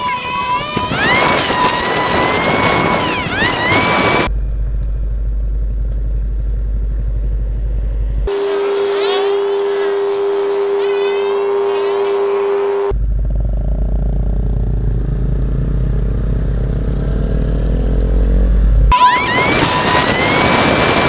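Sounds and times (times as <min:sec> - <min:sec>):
motorcycle engine and wind rumble: 0:12.9 - 0:21.0.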